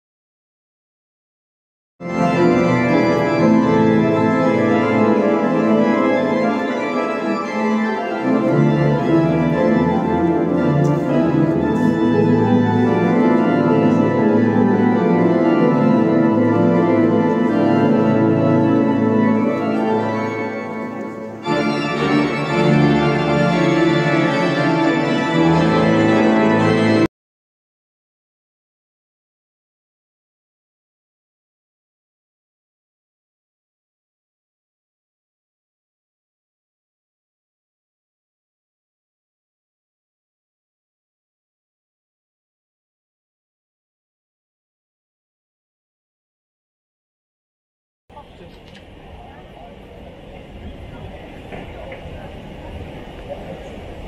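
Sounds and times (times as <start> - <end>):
pipe organ playing chords: 2.0 - 27.1, 48.1 - 54.0.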